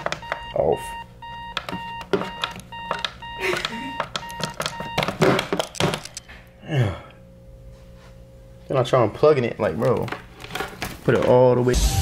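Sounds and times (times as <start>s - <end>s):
alarm clock beeping: 0.0s - 5.4s.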